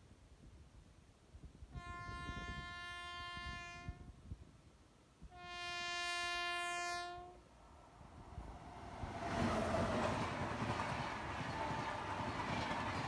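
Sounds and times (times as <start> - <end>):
locomotive air horn blasts: 1.7 - 4.1, 5.3 - 7.5
train rumble: 7.6 - 13.0.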